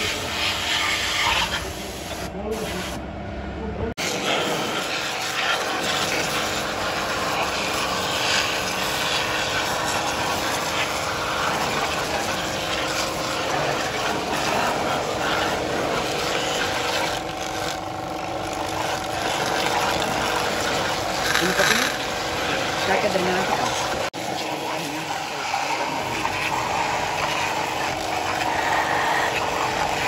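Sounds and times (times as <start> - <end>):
pressure washer spray hissing: 0.0 - 3.0, 19.2 - 24.0
pump motor humming: 4.0 - 30.0.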